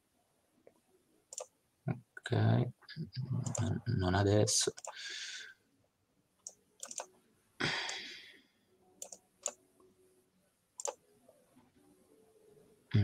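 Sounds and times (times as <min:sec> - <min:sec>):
computer mouse clicks: 0:01.3 - 0:01.5, 0:04.7 - 0:05.0, 0:06.4 - 0:07.1, 0:09.0 - 0:09.6, 0:10.8 - 0:11.0.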